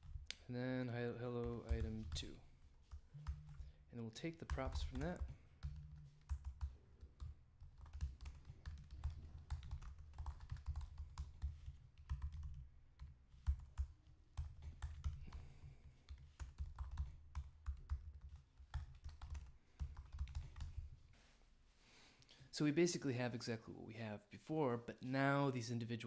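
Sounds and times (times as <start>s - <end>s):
keyboard typing: 1.4s - 15.5s, 16.1s - 20.9s.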